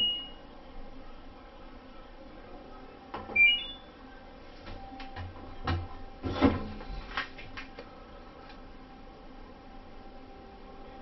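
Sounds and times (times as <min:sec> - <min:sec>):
rising three-note beep: 0:00.0 - 0:00.4
washing machine clicks and knocks: 0:05.0 - 0:06.7.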